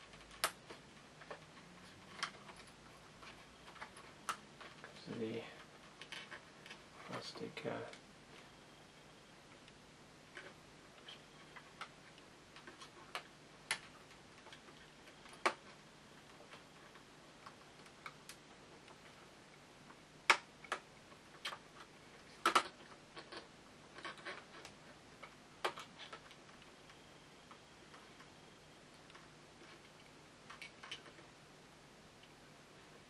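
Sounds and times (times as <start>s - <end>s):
plastic packaging clicking and snapping: 20.2s - 26.4s.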